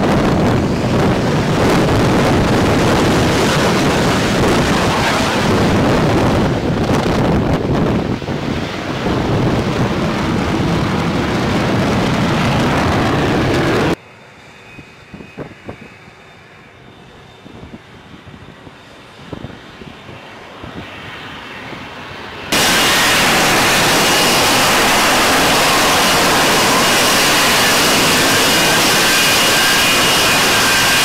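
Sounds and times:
jet engine and lift fan hovering: 0.0s - 31.0s
faint high whine: 22.5s - 31.0s.

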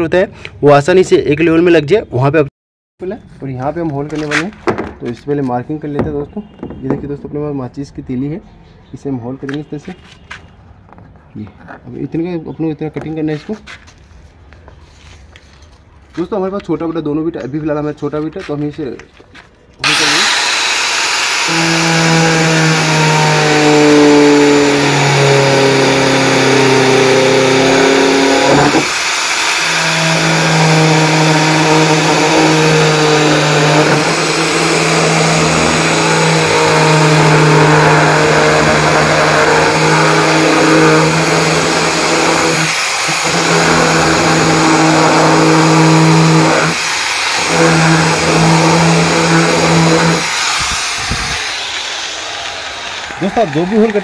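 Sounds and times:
electric grinder cutting plastic: 19.8s - 54.0s.

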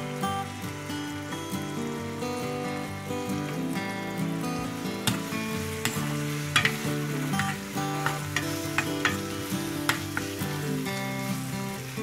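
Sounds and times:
onion and chillies sizzling in pan: 0.0s - 12.0s
spoon scraping and tapping pan: 5.0s - 10.6s.

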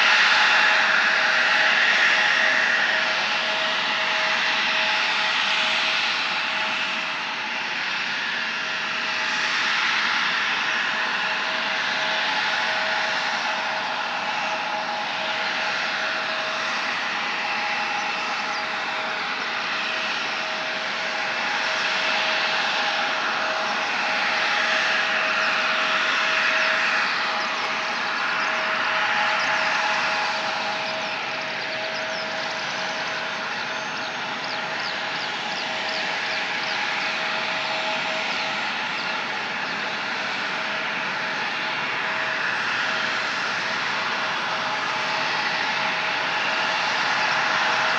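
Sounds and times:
jet engines idling: 0.0s - 47.9s.

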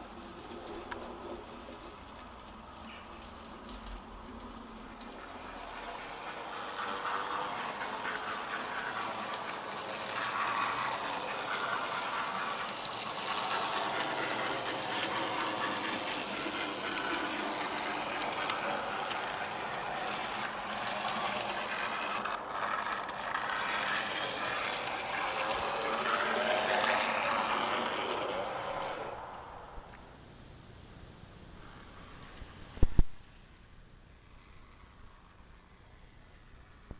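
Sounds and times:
wheels clicking over rail joints: 0.0s - 29.2s
model train motor whirr: 0.0s - 29.7s.

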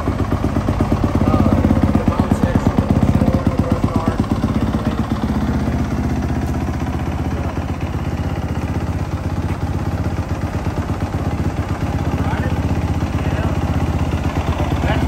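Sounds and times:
dirt bike engine idling: 0.0s - 15.0s.

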